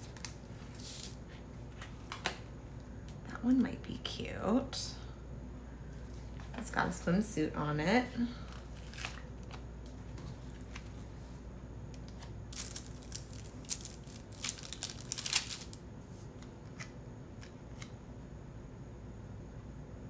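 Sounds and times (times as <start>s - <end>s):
paper sticker sheets rustling: 0.0s - 2.4s, 12.0s - 16.5s.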